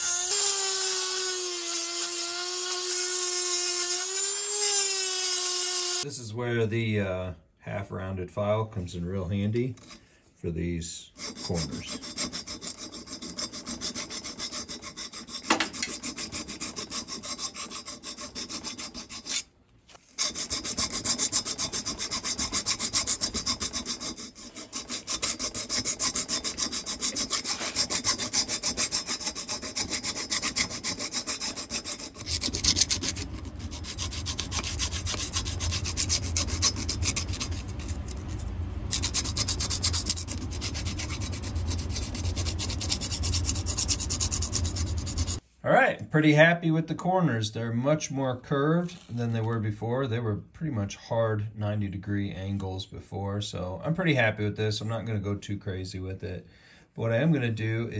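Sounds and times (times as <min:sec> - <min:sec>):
hand file rasping on metal: 0:00.0 - 0:06.1, 0:09.8 - 0:10.0, 0:11.1 - 0:19.5, 0:20.2 - 0:45.4.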